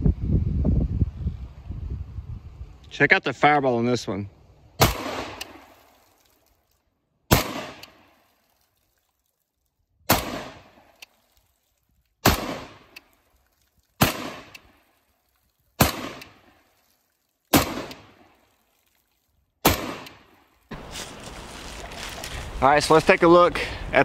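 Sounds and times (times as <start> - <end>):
gunshots with echo: 4.8 - 5.4, 7.3 - 8.0, 14.0 - 14.5, 19.6 - 20.2.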